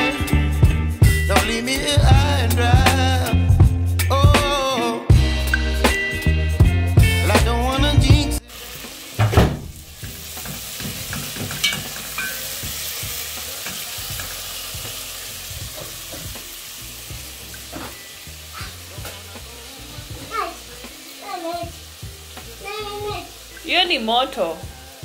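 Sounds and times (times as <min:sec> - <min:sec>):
sauce sizzling in a pot: 0:08.4 - 0:25.0.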